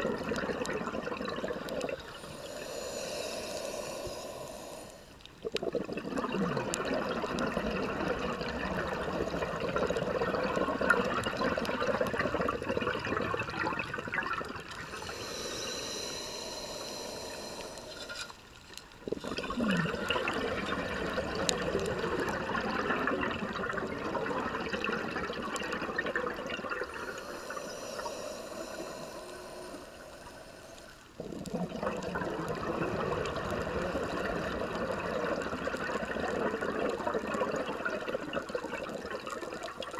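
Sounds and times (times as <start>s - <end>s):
exhaled bubbles underwater: 0.0s - 39.9s
regulator hissing inhale: 1.7s - 5.4s, 14.7s - 20.5s, 26.8s - 31.2s.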